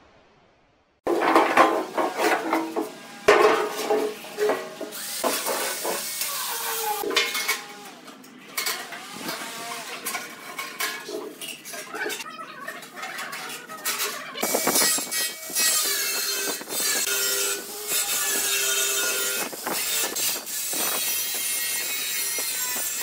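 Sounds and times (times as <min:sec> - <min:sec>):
steel drums clanking on concrete: 0:01.1 - 0:06.3, 0:07.0 - 0:07.7, 0:09.7 - 0:12.2.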